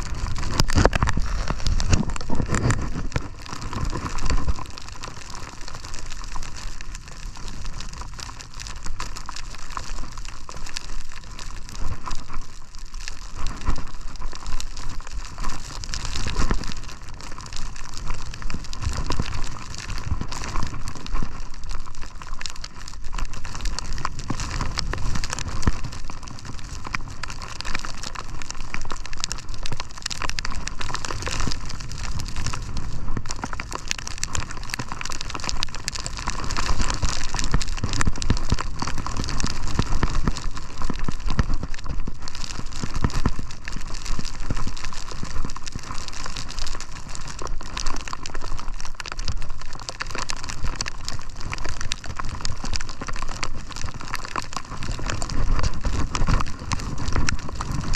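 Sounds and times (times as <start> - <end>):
wind rushing over microphone: 0.0 - 5.9, 15.4 - 21.4
skis scraping over snow: 0.0 - 12.4.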